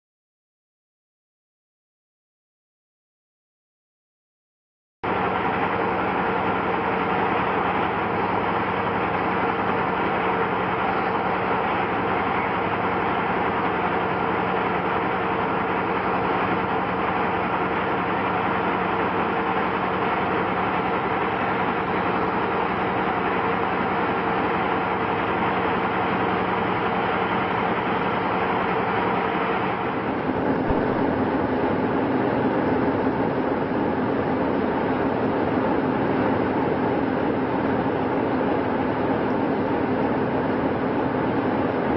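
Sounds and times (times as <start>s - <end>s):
diesel locomotive idling: 5.0s - 36.0s.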